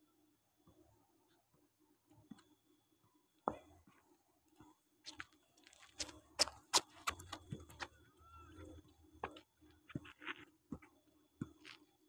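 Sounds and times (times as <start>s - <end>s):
footsteps on artificial turf: 5.8s - 7.9s.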